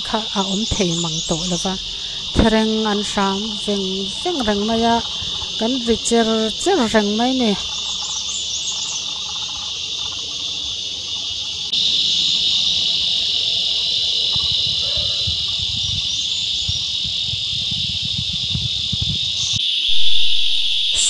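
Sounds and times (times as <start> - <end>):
cicada buzzing: 0.0 - 21.0.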